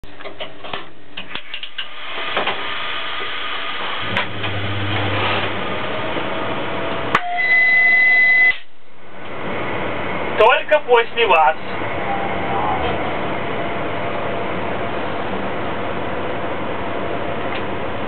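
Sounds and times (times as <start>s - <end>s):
high-pitched signal tone: 7.2s - 8.7s, 12.0s - 12.9s.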